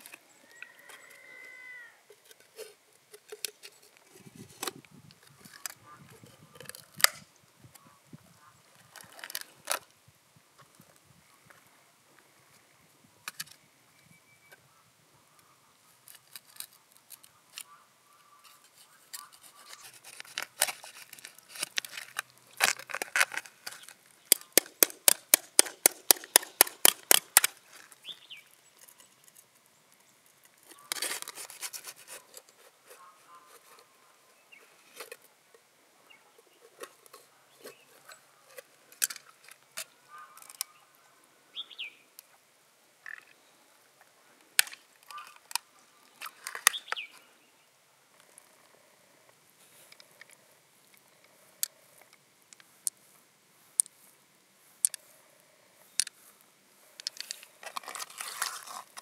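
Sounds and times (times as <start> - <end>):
knife scraping mussel shell: 19.1 - 27.6.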